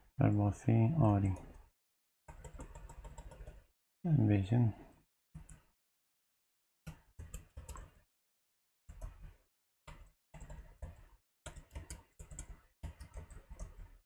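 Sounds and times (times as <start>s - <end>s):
keyboard keystrokes typing: 2.3s - 3.7s, 6.9s - 8.0s, 9.9s - 13.9s.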